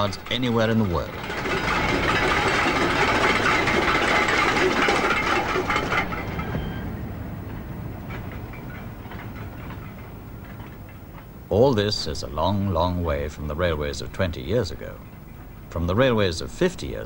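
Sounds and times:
steel wheels clattering on rails: 0.0 - 17.0.

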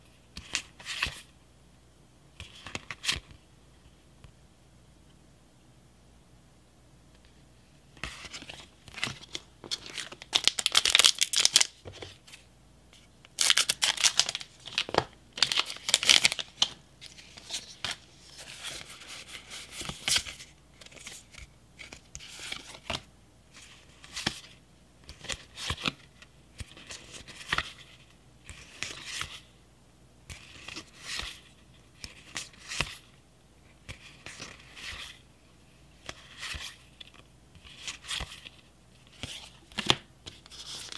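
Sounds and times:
cards sliding and rubbing: 17.1 - 27.9, 30.3 - 33.1, 33.8 - 35.2, 36.0 - 40.9.

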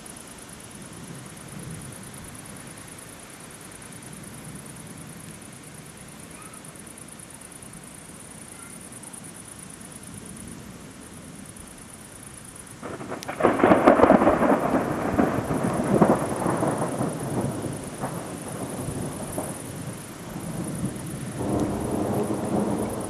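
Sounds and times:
thunder crack and rumble: 12.8 - 23.0.

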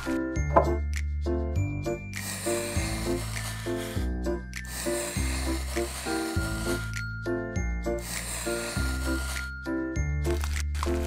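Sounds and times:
background music: 0.0 - 11.0
knife cutting fondant: 4.8 - 7.0, 8.4 - 9.5.

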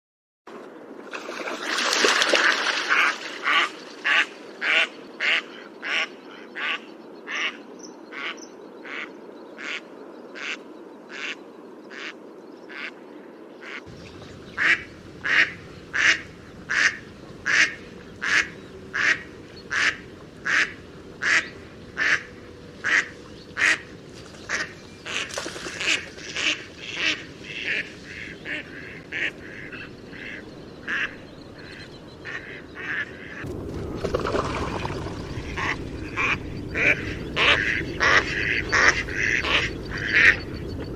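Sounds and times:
duck quacking: 14.6 - 23.8, 24.5 - 31.1, 35.5 - 40.4.

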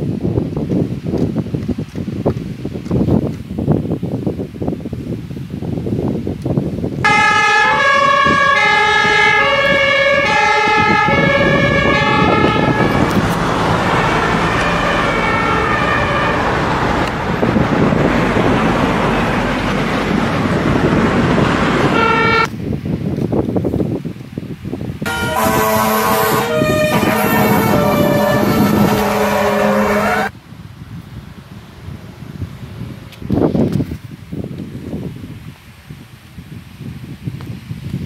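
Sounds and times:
two-tone emergency siren: 7.0 - 22.5, 25.1 - 30.3
loud rushing noise: 7.1 - 22.5, 25.1 - 30.3.

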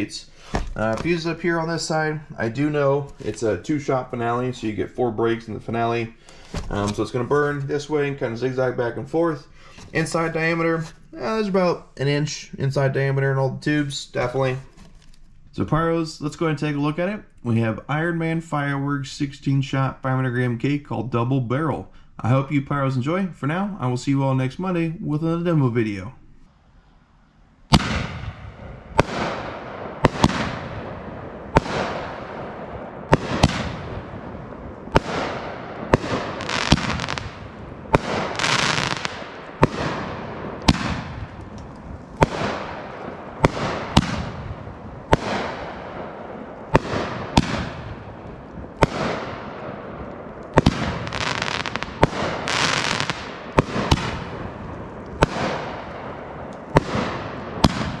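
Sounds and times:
firework bangs with hiss: 0.4 - 1.3, 27.7 - 41.5, 42.2 - 49.8, 50.5 - 58.0.

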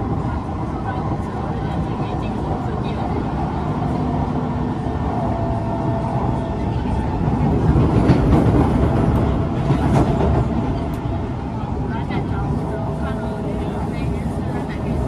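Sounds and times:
track clacks: 0.0 - 15.0
train wheels rumbling on rails: 0.0 - 15.0.

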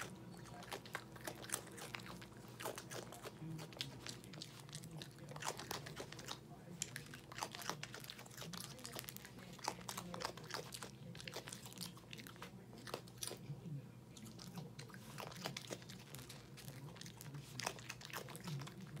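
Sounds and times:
raccoon crunching dry cereal: 0.0 - 19.0.

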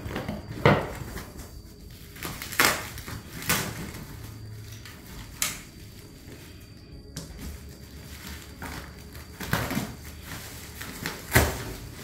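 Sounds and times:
cardboard and plastic rustling: 0.0 - 12.0.

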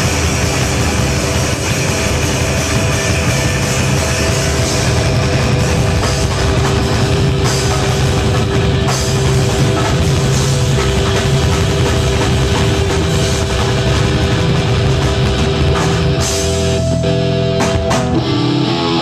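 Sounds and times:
bass guitar: 0.0 - 19.0
drum kit: 0.0 - 19.0
electric guitars: 0.0 - 19.0
steady held ringing note: 16.2 - 17.9.

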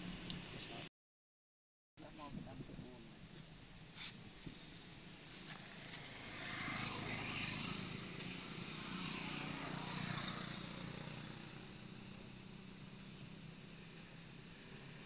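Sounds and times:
engine passing by: 4.5 - 15.0.

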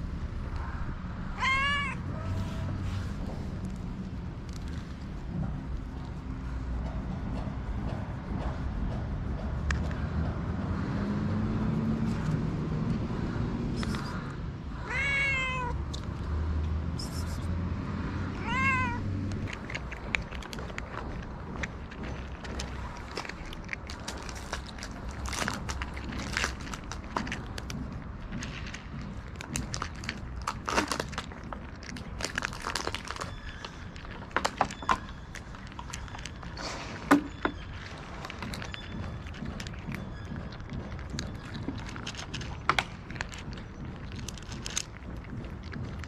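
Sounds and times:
cats crunching dry kibble: 0.0 - 46.0
cat meowing: 1.3 - 2.8, 14.8 - 15.8, 18.3 - 19.1.

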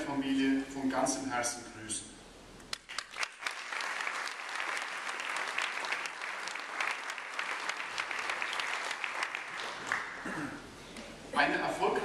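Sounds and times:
audience applauding: 2.7 - 10.4.

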